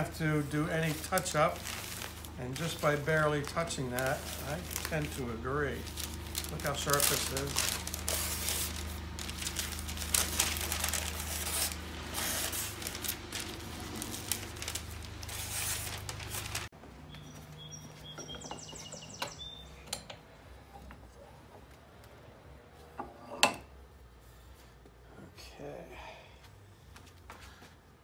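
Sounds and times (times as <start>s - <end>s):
packing paper crinkling: 0.0s - 16.7s
low hum: 4.2s - 16.7s
faint bird chirps: 17.1s - 19.9s.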